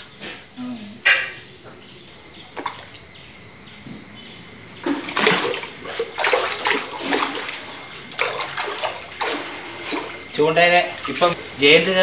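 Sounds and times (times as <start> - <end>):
fish splashing in water: 4.8 - 11.5.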